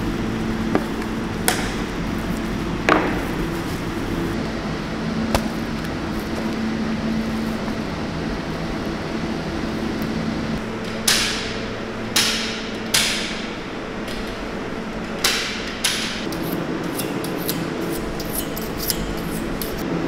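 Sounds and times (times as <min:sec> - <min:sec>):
cooling plant hum: 0:00.0 - 0:20.0
knives clicking and scraping: 0:16.3 - 0:19.8.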